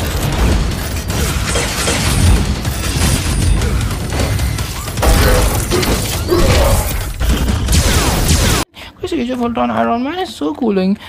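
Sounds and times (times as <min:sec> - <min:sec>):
heavy metallic impacts and booms: 0:00.0 - 0:08.6.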